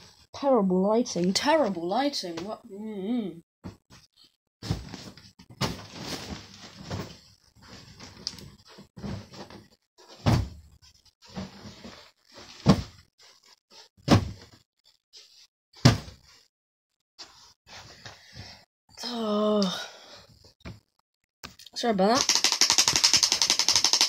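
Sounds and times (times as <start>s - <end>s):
knocks and thumps: 9.0s - 10.6s, 12.6s - 13.1s, 14.0s - 14.6s, 15.8s - 16.3s.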